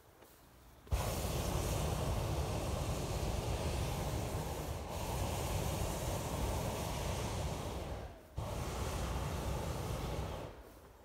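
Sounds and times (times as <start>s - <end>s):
propane burner roaring: 0.9s - 10.6s.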